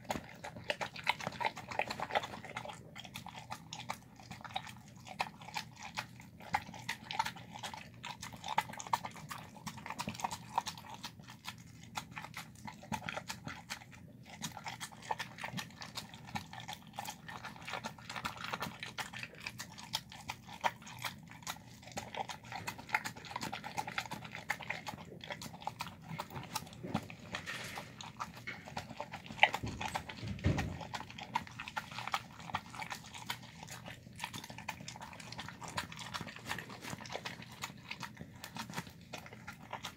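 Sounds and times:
dog chewing and licking: 0.0 - 39.9
knock: 29.7 - 30.8.

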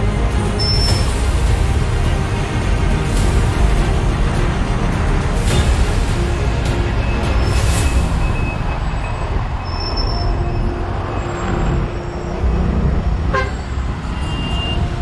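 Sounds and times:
traffic engines and road noise: 0.0 - 15.0
vehicle horn: 13.2 - 15.0.

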